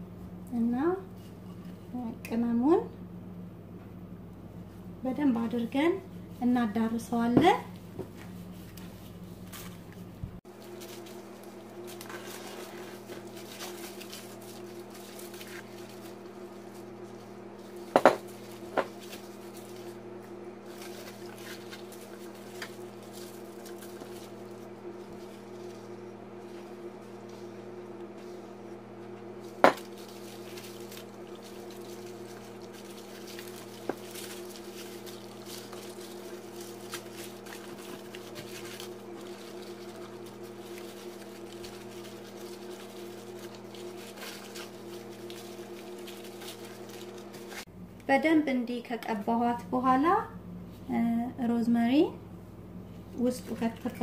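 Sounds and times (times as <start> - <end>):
steady hum: 0.0 - 54.0
squishing marinade into chicken: 7.8 - 47.7
foil crinkling: 10.5 - 47.7.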